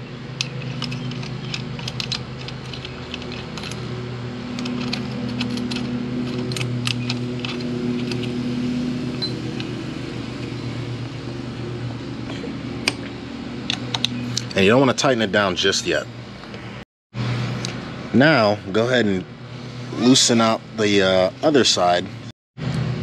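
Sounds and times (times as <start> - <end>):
metallic clicks and clinks: 0.4 - 3.9, 4.5 - 8.4.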